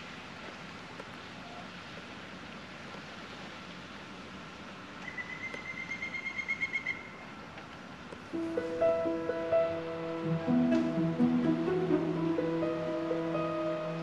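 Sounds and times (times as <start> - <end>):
background hiss: 0.0 - 14.0
bird calling: 5.0 - 7.2.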